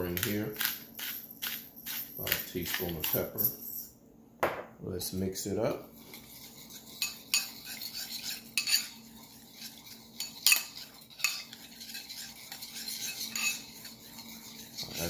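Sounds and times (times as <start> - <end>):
spoon scraping ceramic bowl: 5.8 - 15.0
spoon clinking against bowl: 7.0 - 8.9, 10.2 - 13.9.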